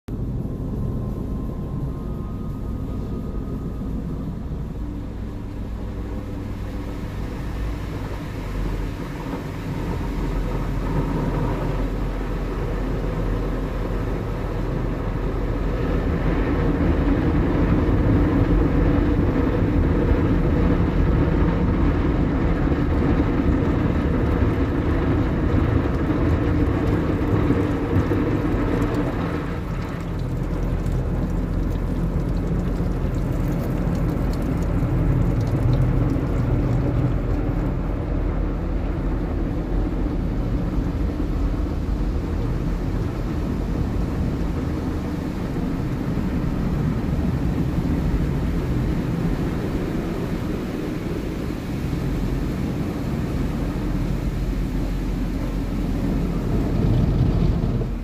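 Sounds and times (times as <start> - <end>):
low mechanical hum: 0.1 - 58.0
water spraying onto glass: 26.4 - 37.9.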